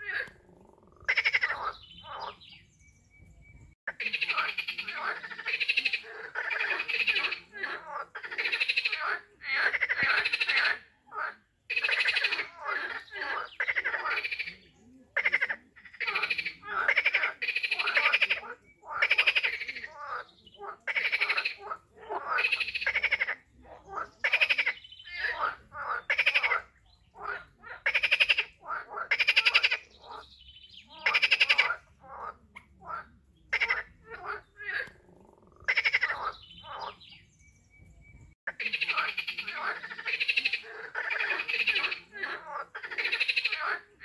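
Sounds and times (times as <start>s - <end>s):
frogs croaking: 0.0s - 2.7s, 3.9s - 37.4s, 38.5s - 44.0s.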